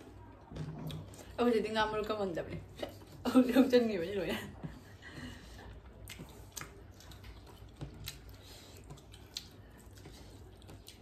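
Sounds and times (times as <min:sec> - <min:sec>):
chewing and mouth smacks: 0:00.4 - 0:01.4, 0:05.6 - 0:11.0.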